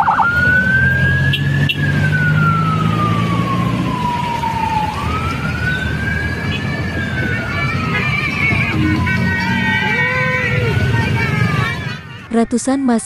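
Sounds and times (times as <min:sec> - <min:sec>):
low engine hum: 0:00.0 - 0:12.3
vehicle siren wailing: 0:00.0 - 0:12.3.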